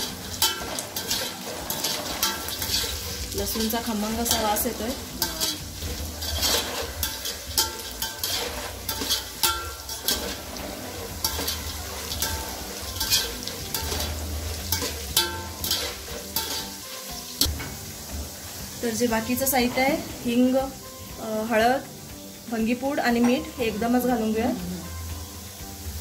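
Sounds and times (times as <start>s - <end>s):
skimmer scraping metal pot: 0.0s - 17.4s
food sizzling in oil: 0.0s - 26.0s.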